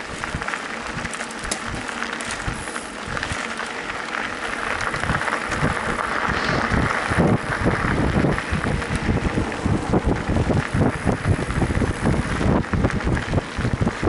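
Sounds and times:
bike tyres rushing on dirt: 0.0 - 14.0
wind on microphone: 4.7 - 14.0.

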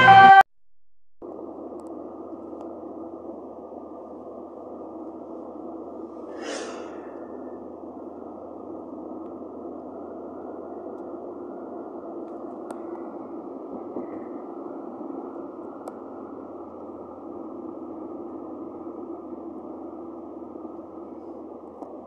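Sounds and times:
muffled road and engine noise: 1.2 - 22.0
brief whoosh: 6.3 - 7.4.

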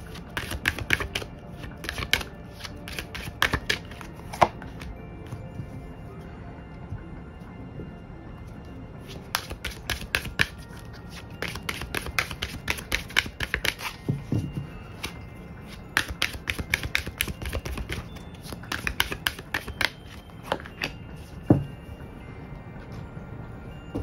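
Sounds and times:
cards being shuffled: 0.0 - 5.0, 9.1 - 21.4.

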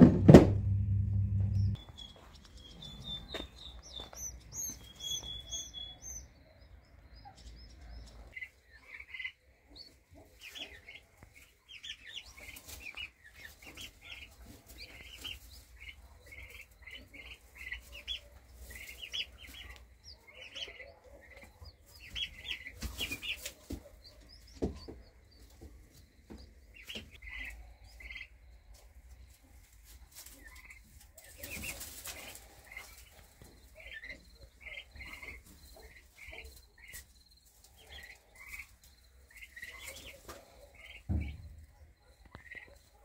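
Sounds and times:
chicks peeping: 0.0 - 43.0
rustles in wood shavings: 12.2 - 19.9, 28.6 - 33.9.

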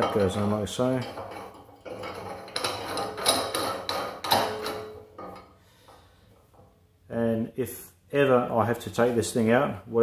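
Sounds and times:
metal cap screwing onto pipe: 0.0 - 5.6.

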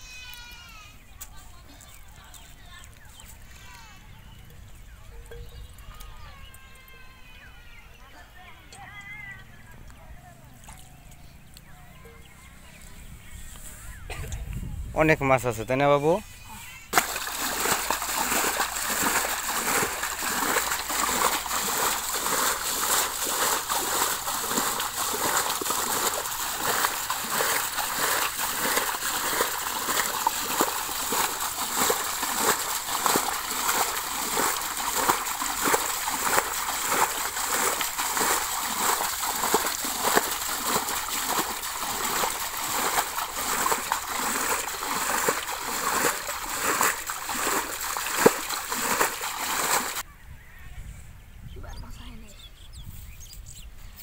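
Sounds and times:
water splashing from bailing: 16.8 - 50.0.

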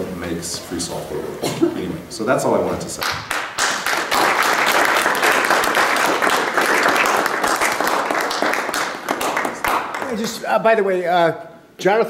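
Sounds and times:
audience applauding: 3.0 - 10.5.

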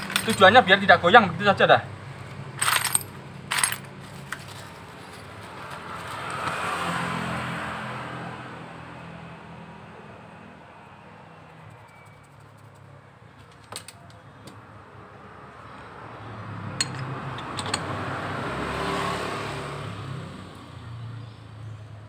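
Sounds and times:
metal parts clinking: 0.0 - 0.6, 2.6 - 5.4, 16.8 - 17.9
passing vehicle: 0.0 - 13.4, 14.1 - 22.0.

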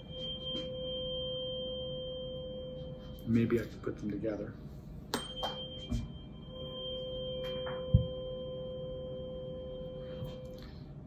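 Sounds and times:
tuning forks ringing: 0.0 - 3.7, 5.1 - 10.9.

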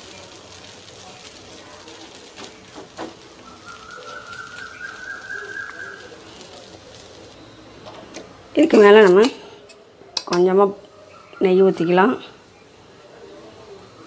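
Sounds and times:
ladle spreading batter on griddle: 0.0 - 8.1
thin whistling tone: 3.4 - 7.8.

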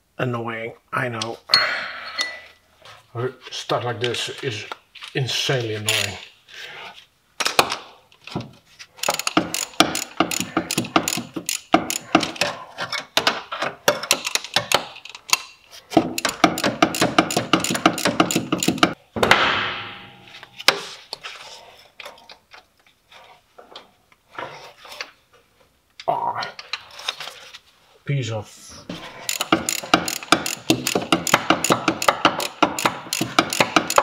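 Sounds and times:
ratchet wrench clicking: 9.0 - 12.2, 16.1 - 19.0, 29.2 - 34.0
ratchet rasp: 9.0 - 12.4, 16.1 - 19.0, 28.9 - 34.0.

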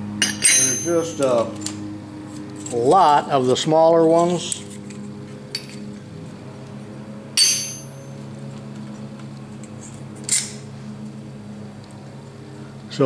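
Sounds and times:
steady low hum: 0.0 - 13.0
metal cutters clinking: 0.2 - 6.0, 7.4 - 8.7, 9.6 - 10.6.

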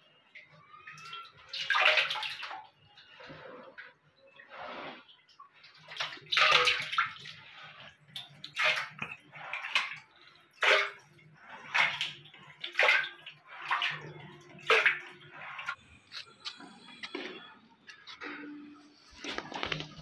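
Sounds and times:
hands splashing muddy water: 5.8 - 16.3.

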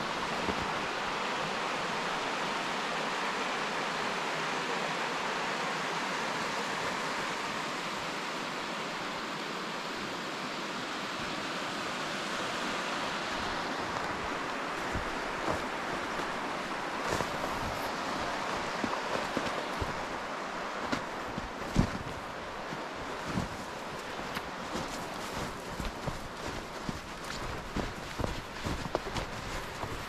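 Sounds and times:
mountain stream rushing: 0.0 - 30.0.

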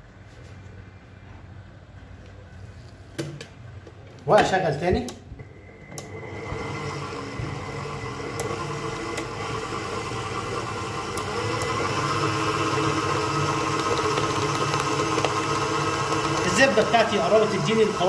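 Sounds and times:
stand mixer motor humming: 5.4 - 18.0.

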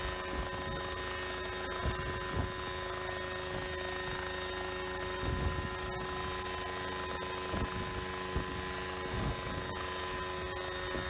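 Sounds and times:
model helicopter hovering: 0.0 - 11.0
wind buffeting microphone: 5.2 - 5.8, 7.5 - 9.7.

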